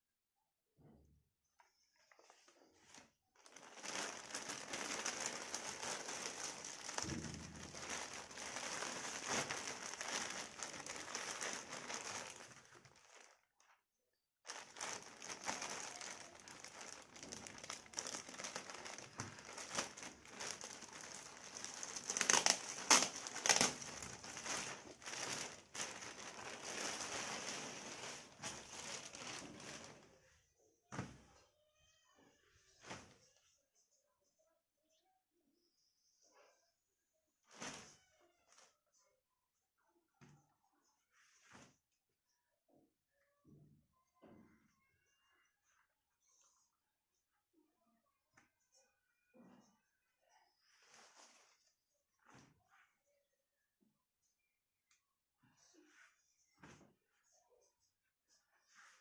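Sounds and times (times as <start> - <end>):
plastic packaging crinkling: 3.4 - 13.4, 14.5 - 30.0.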